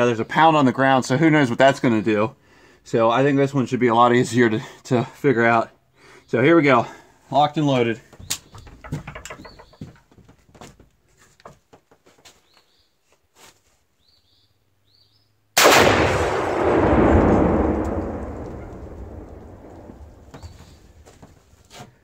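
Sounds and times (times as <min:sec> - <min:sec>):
rifle shot: 0:15.6 - 0:20.4
loud explosion blast: 0:15.6 - 0:20.9
rolling rumble: 0:16.0 - 0:21.6.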